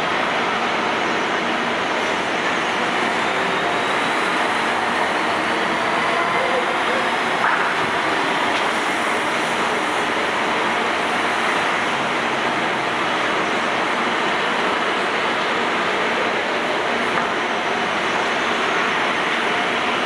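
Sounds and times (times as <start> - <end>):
airport background rushing noise: 0.0 - 20.0.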